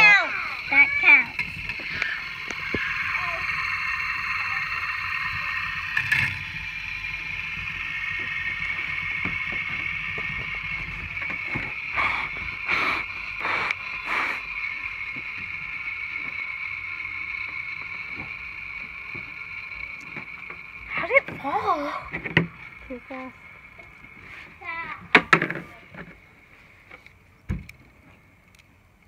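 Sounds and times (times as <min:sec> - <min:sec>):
short hissing bursts: 0:00.0 - 0:26.9
fidget spinners whirring: 0:00.0 - 0:28.7.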